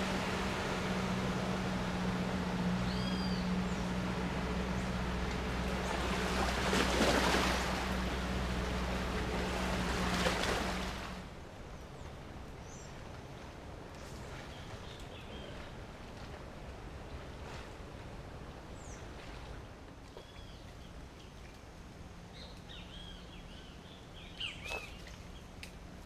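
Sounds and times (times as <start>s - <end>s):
water rushing: 0.0s - 12.5s
outboard engine hum: 0.0s - 26.0s
bird chirps: 2.8s - 3.9s.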